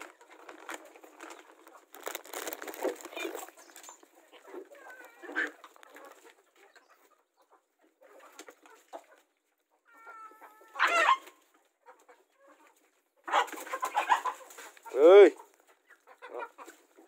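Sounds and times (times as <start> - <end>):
hens clucking: 0.0 - 17.0.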